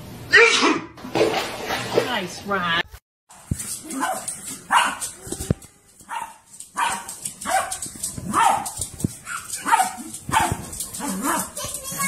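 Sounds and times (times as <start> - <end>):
small dog barking: 3.9 - 5.1, 6.1 - 11.6.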